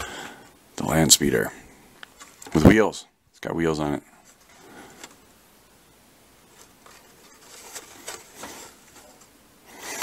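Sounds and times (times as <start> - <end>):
plastic and cardboard scrapes: 6.6 - 10.0.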